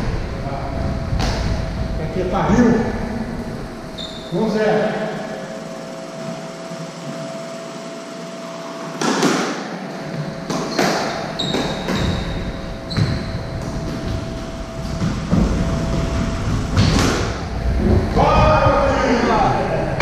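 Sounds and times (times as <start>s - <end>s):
squash ball hits echoing: 1.1s - 1.7s, 8.9s - 18.2s
shoe squeaks: 3.9s - 4.6s, 10.5s - 16.4s.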